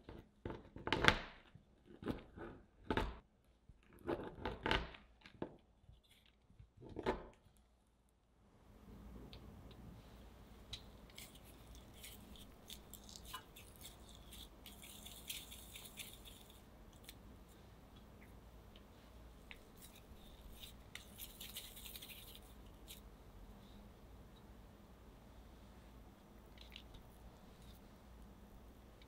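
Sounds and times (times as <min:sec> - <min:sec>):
hands rolling cookie dough: 0:00.0 - 0:08.2, 0:08.9 - 0:23.8.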